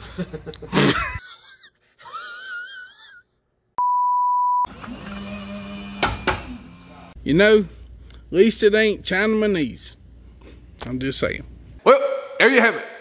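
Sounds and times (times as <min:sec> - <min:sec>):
censor bleep tone: 0:03.8 - 0:04.7.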